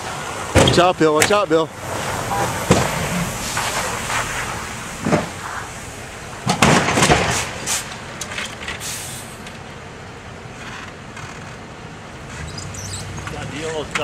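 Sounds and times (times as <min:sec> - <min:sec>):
car knocking into curb: 0:00.5 - 0:01.4, 0:02.0 - 0:05.4, 0:06.4 - 0:07.7.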